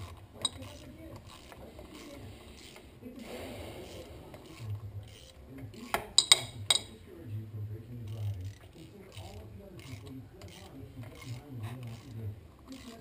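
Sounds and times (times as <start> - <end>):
sharp metallic clinks: 6.2 - 7.0.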